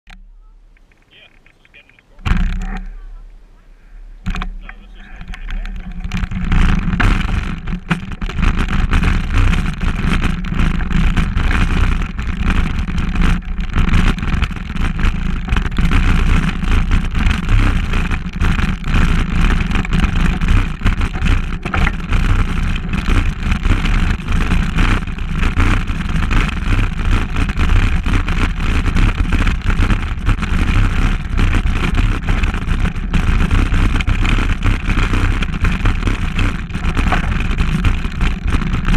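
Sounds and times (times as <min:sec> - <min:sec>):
bike rattling over dirt trail: 0:00.1 - 0:38.9.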